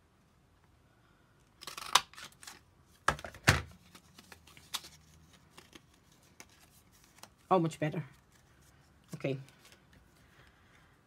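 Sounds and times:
card rustling: 1.6s - 10.9s.

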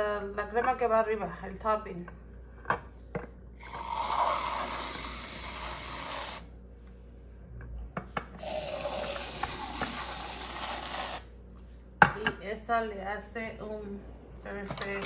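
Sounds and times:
aerosol whipped cream hissing: 3.6s - 6.5s, 8.4s - 11.3s.

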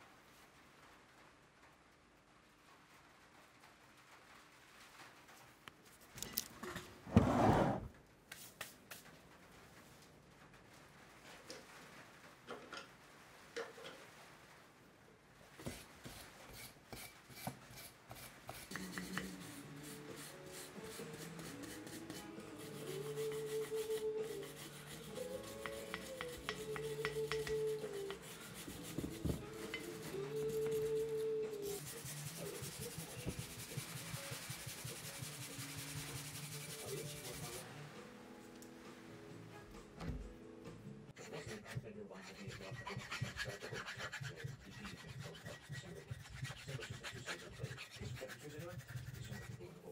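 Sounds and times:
hand tool scrubbing rust: 16.5s - 37.6s, 41.2s - 49.6s
soft background music: 18.5s - 44.0s.

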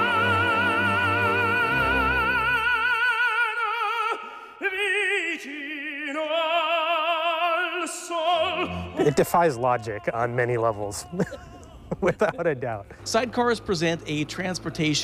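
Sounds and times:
operatic singing with vibrato: 0.0s - 15.0s.

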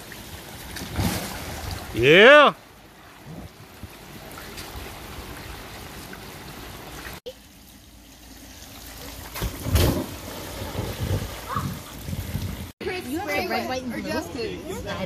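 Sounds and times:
water spraying and trickling: 0.0s - 2.0s, 2.6s - 12.8s
thump on wet slide: 9.3s - 11.2s.

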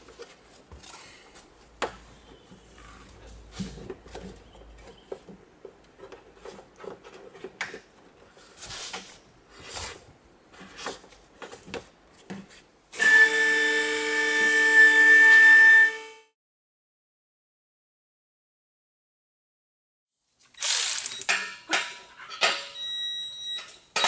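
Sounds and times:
rustling and scraping: 0.0s - 12.9s
electric pump motor whine: 13.0s - 16.3s.

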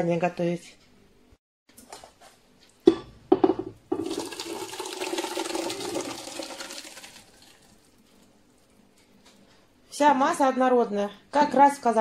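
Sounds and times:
pot knocks: 2.9s - 4.2s
thick puree pouring into pot: 4.0s - 8.8s.

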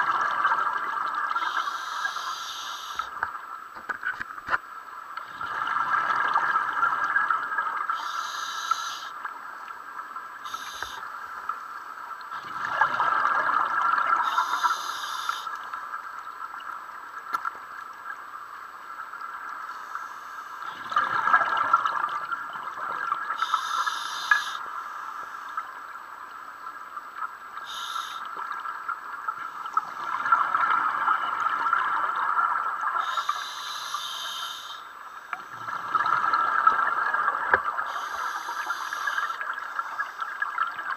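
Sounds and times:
exhaled bubbles rushing underwater: 0.0s - 1.6s, 5.3s - 8.2s, 12.3s - 14.8s, 20.6s - 23.8s, 28.4s - 33.3s, 35.4s - 40.9s
regulator hissing inhalations: 1.4s - 3.1s, 7.9s - 9.1s, 10.4s - 11.0s, 14.2s - 15.5s, 23.4s - 25.5s, 27.6s - 28.3s, 33.0s - 35.0s, 37.8s - 39.4s.

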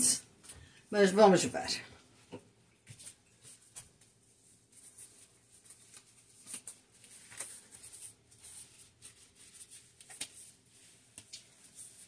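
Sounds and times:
plastic glove rustling: 2.8s - 12.0s.

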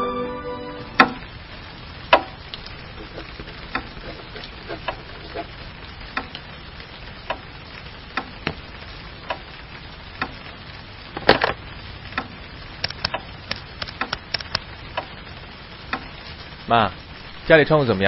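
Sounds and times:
wall clock ticking: 1.0s - 1.2s, 2.1s - 8.6s, 9.2s - 10.4s, 12.1s - 15.2s, 15.8s - 16.2s.

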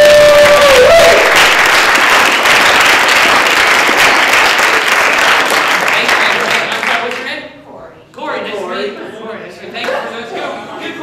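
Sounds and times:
person whooping: 0.0s - 1.4s
crowd applauding: 0.0s - 7.3s.

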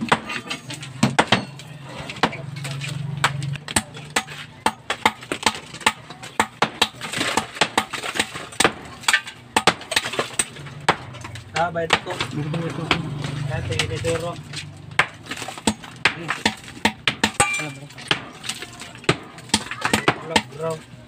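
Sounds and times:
hammer blows on concrete blocks: 0.0s - 1.6s, 3.2s - 12.3s, 14.9s - 20.8s.

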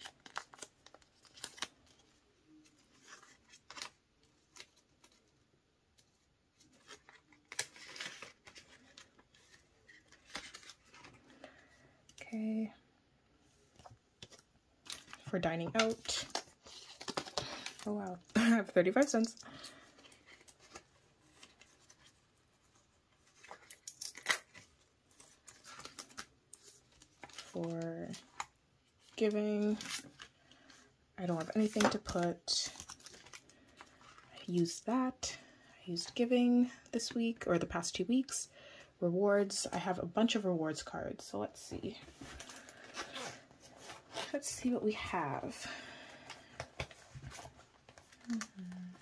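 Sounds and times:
handling of plastic pocket: 0.0s - 5.4s, 6.0s - 12.2s, 13.8s - 17.9s, 31.4s - 34.4s.

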